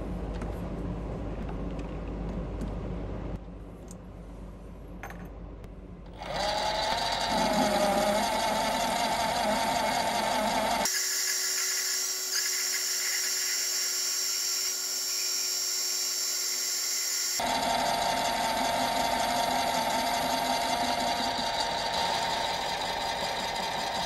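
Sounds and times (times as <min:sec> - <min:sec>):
metal lathe whining: 0:06.2 - 0:24.0.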